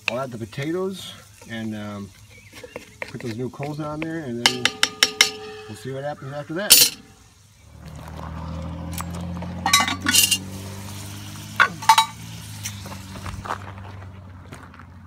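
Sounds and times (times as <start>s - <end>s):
metal utensils clinking on iron pot: 2.5s - 5.9s, 6.7s - 7.2s, 9.6s - 10.5s, 11.6s - 12.2s.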